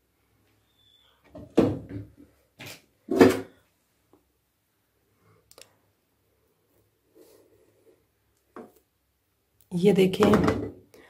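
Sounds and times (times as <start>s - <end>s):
faint clicks: 5.5s - 5.8s.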